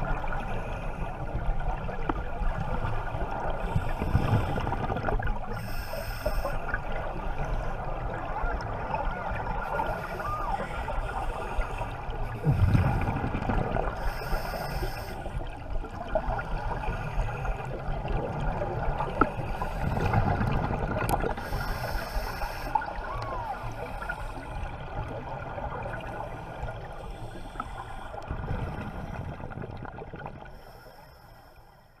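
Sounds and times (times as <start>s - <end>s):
underwater bubbling: 0.0s - 32.0s
regulator inhalation hisses: 5.6s - 6.6s, 14.0s - 15.4s, 21.4s - 22.8s
exhaled bubble bursts: 12.4s - 14.0s.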